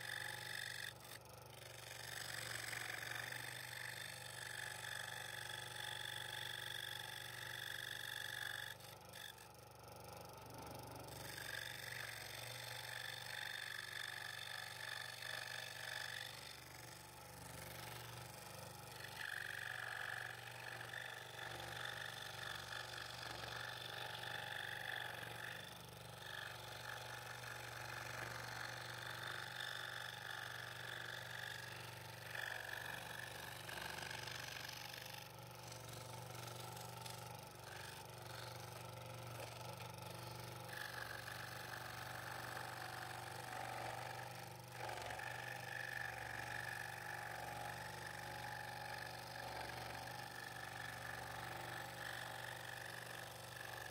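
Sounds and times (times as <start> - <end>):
saw blade cutting buzz: 0.0 - 53.9
scroll saw motor hum: 0.0 - 53.9.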